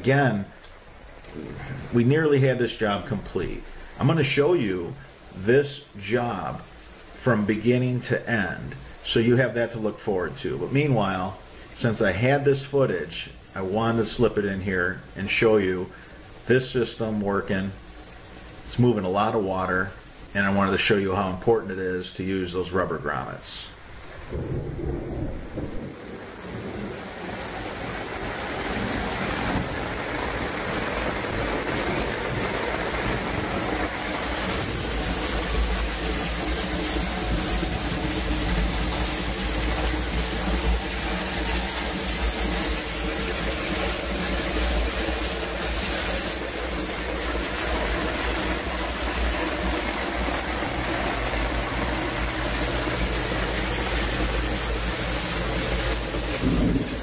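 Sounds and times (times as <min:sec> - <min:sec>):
heavy rain: 0:00.0 - 0:57.0
water pouring from drain pipe: 0:00.0 - 0:57.0
low rumble: 0:24.2 - 0:26.1.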